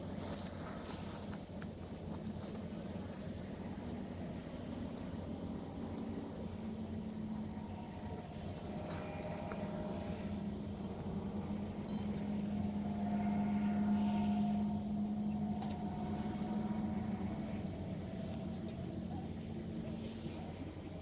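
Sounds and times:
insect chirping: 0.0 - 21.0
steady low hum: 0.0 - 21.0.

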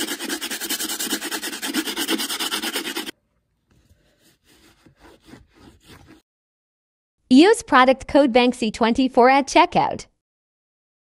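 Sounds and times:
brush scrubbing leather shoe: 0.0 - 3.2, 4.0 - 6.2.

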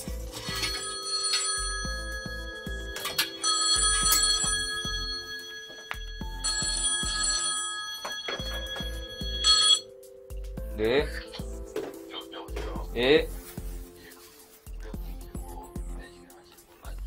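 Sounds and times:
phone ringtone melody: 0.0 - 10.2.

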